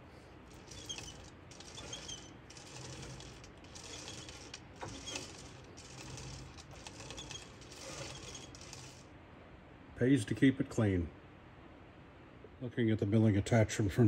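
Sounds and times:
belt squeaks: 0.0 - 9.1
lathe humming: 0.0 - 9.1.

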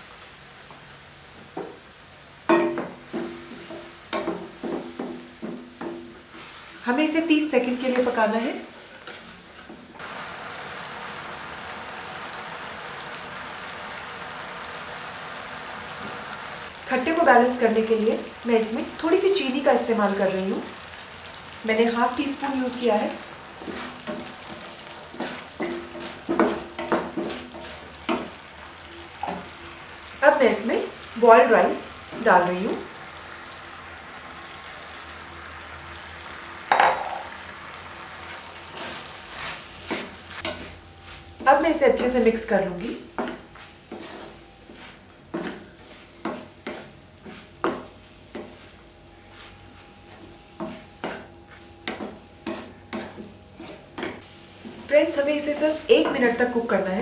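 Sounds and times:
food sizzling and bubbling: 0.0 - 57.0
wooden spatula scraping a pan: 6.2 - 6.9, 22.4 - 28.4, 38.2 - 42.1, 43.1 - 56.5.

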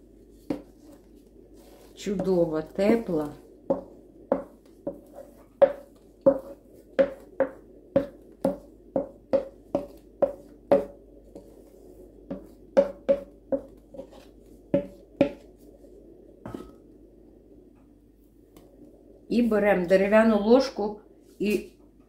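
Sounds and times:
wooden spoon knocking steel bowl: 3.7 - 11.0, 12.2 - 13.8, 14.7 - 15.4.

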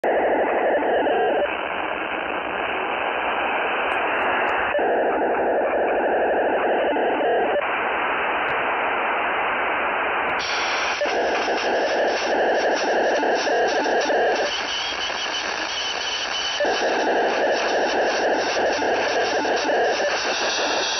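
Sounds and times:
radio hiss: 0.0 - 20.9
rasping data buzz: 10.4 - 20.9.

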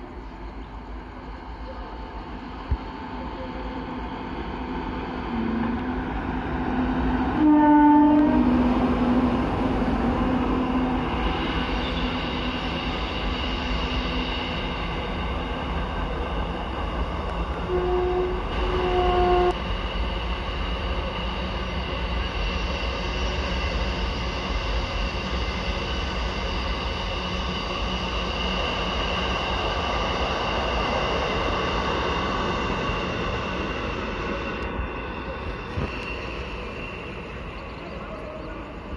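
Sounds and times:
train wagons rumbling and rattling: 0.0 - 38.9
train horn blasts: 7.3 - 8.7, 17.6 - 19.6.

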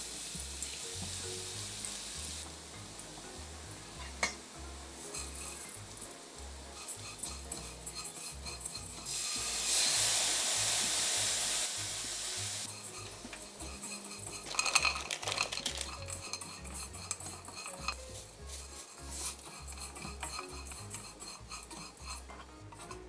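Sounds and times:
fish sizzling in a wok: 0.0 - 22.9
spatula scraping wok: 0.1 - 23.0
nuts clattering into pan: 6.7 - 9.8, 12.7 - 22.2.

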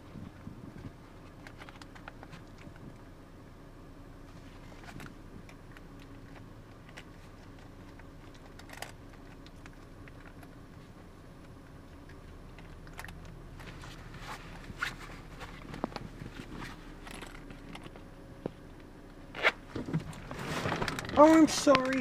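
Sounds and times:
low car interior hum: 0.0 - 22.0
zipper clicks and bag rustles: 13.6 - 18.0.

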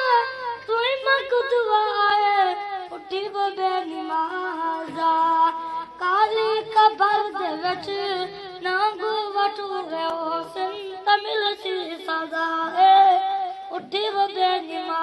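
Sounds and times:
boy singing unaccompanied: 0.0 - 15.0.

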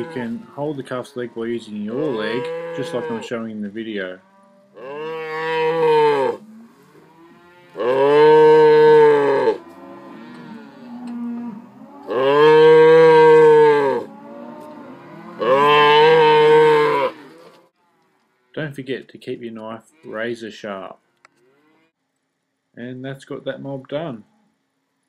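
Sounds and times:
calf bawling: 1.4 - 3.3, 7.7 - 9.6, 12.0 - 17.4.

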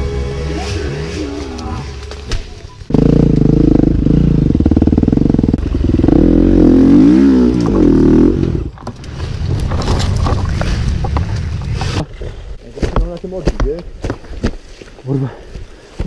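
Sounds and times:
dirt bike engine revving: 0.0 - 2.2, 2.8 - 8.8.

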